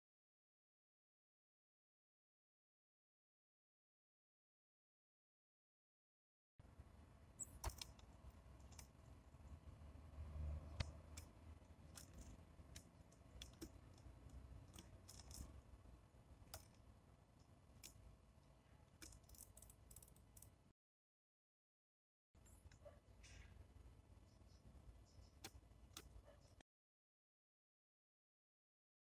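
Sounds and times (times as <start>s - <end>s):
low background hum: 6.6s - 20.7s
birds pecking on wooden feeder: 10.7s - 15.6s.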